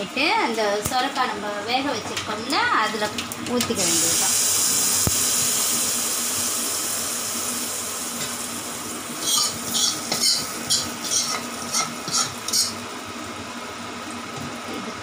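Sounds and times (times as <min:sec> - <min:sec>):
hot oil sizzling: 0:00.7 - 0:15.0
steel ladle scraping a pan: 0:09.2 - 0:12.8.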